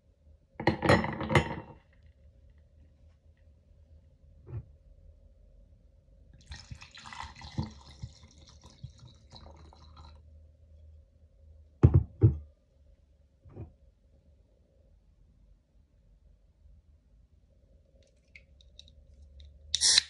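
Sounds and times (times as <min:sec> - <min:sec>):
wine pouring over ice: 0:06.4 - 0:10.2.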